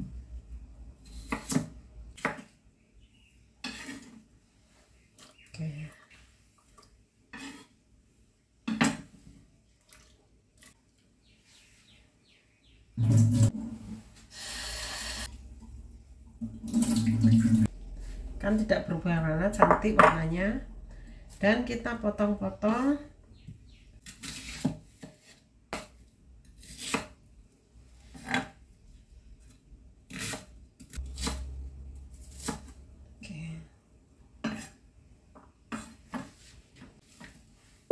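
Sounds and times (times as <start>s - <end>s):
knife cutting onion: 1.0s - 2.4s, 24.0s - 27.2s, 30.0s - 32.8s.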